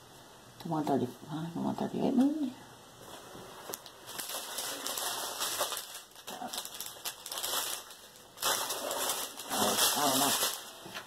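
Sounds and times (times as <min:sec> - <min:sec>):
plastic bags crinkling: 0:03.1 - 0:11.0.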